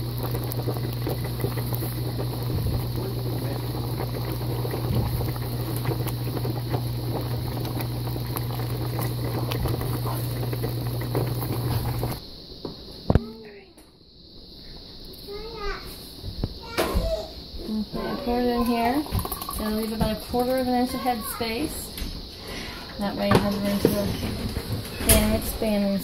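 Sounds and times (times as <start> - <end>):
jam bubbling and popping: 0.0 - 12.2, 18.3 - 20.8
steady low hum: 0.0 - 16.6.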